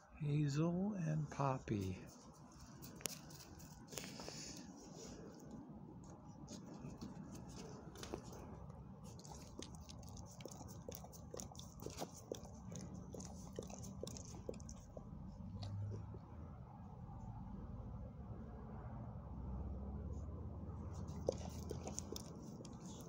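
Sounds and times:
dog licking wet clicks: 2.1 - 4.6, 6.0 - 16.2, 21.0 - 23.0.

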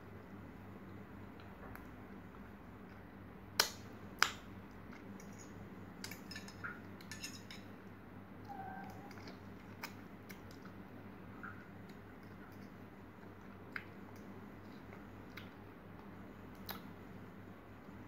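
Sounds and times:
faint steady hum: 0.0 - 18.0
spoon clicks and scrapes: 4.9 - 7.7.

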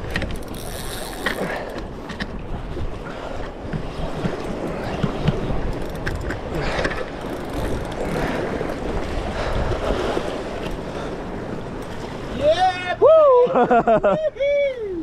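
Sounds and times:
wind buffeting microphone: 0.0 - 12.5
sea washing against rocks: 0.7 - 12.8.

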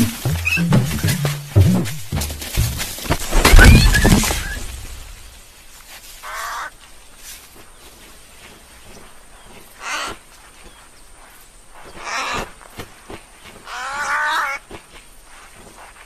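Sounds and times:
wavering pitched animal call: 0.0 - 1.4
faint outdoor background: 0.0 - 16.0.

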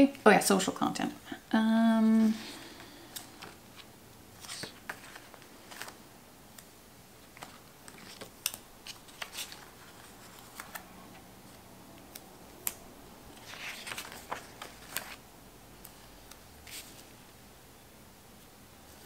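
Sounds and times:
paper rustling and crinkling: 3.1 - 6.0, 7.2 - 11.2, 13.3 - 15.2.

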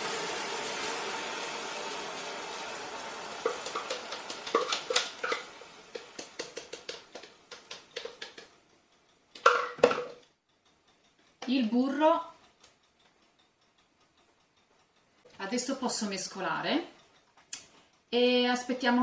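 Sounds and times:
caramel sizzling and steaming: 0.0 - 8.8
crackles and pops: 2.5 - 15.4, 16.8 - 18.2.

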